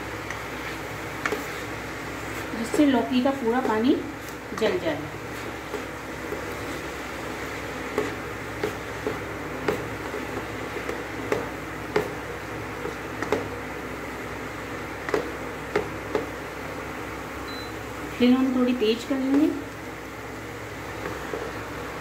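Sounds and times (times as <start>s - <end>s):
cooking hiss: 0.0s - 22.0s
spatula knocking and scraping pan: 0.2s - 12.2s.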